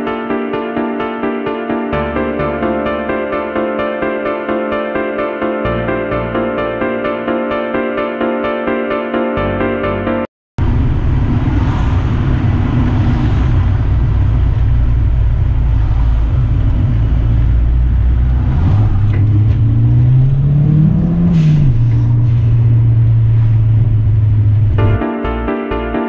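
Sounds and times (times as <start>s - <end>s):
car engine drone from cabin: 10.6s - 25.0s.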